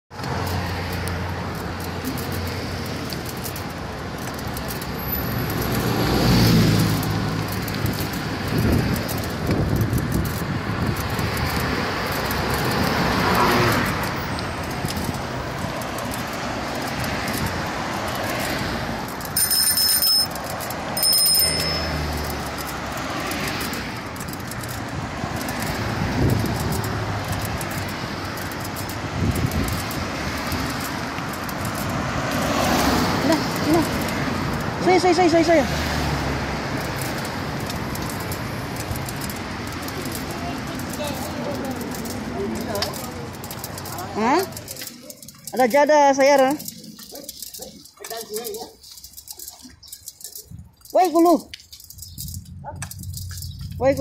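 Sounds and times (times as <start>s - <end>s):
cars passing: 0.1s - 54.0s
short high-pitched rings: 19.4s - 20.4s, 21.0s - 22.2s.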